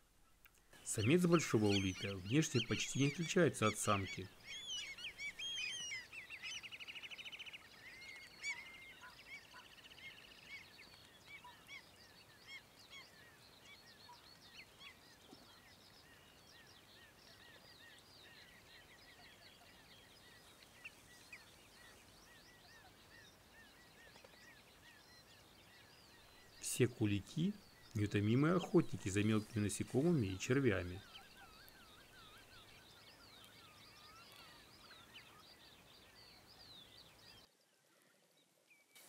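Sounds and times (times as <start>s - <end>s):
shorebirds piping calls: 0.9s - 6.8s, 26.2s - 33.1s
shorebird trill: 1.0s - 6.8s.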